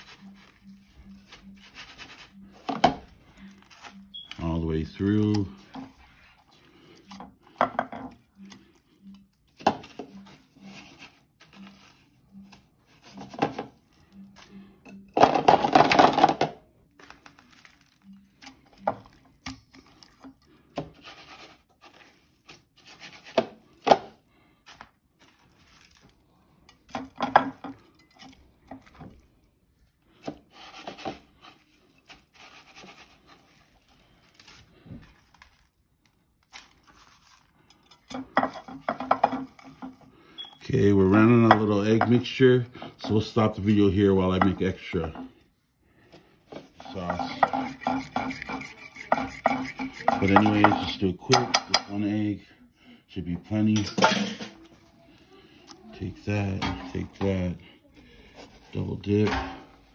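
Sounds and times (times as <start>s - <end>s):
breadcrumbs rustling and scraping: 0.0s - 7.1s, 9.8s - 14.5s, 16.9s - 18.4s, 19.0s - 23.9s, 24.6s - 26.6s, 28.6s - 40.1s.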